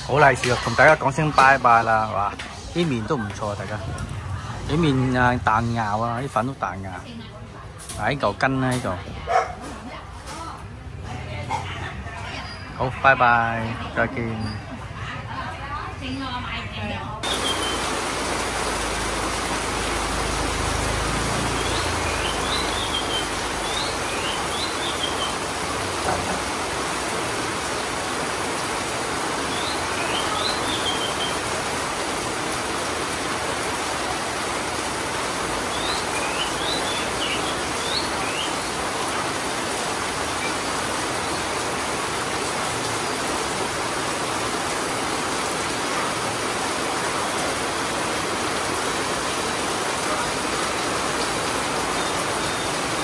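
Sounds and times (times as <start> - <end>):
heavy rain on concrete: 0.0 - 53.0
bird chirping: 17.2 - 18.7, 21.3 - 25.6, 29.4 - 31.5, 35.7 - 38.8.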